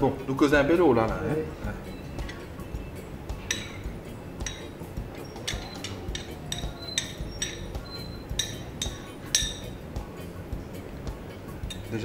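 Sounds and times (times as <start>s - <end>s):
cutlery clinking on china: 3.4s - 9.8s, 11.6s - 11.9s.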